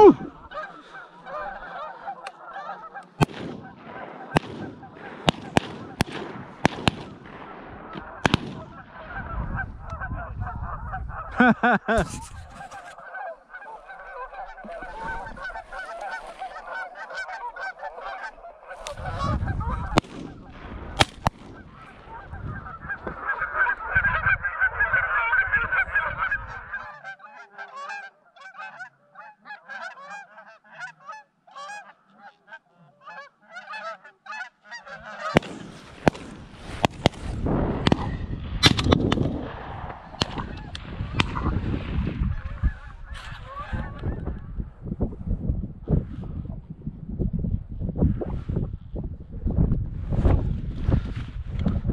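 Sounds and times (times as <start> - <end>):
geese honking: 0.0 - 35.9, 39.6 - 44.4.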